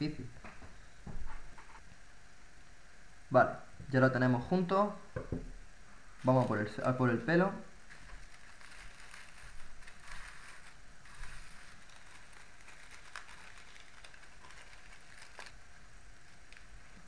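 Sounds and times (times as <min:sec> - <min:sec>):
dry leaves crackling and rustling: 0:07.8 - 0:17.0.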